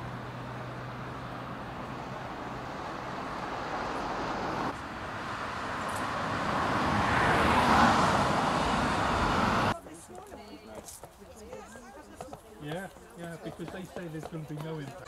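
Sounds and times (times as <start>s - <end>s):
vehicle approaching: 0.0s - 9.9s
cars passing: 0.0s - 10.3s.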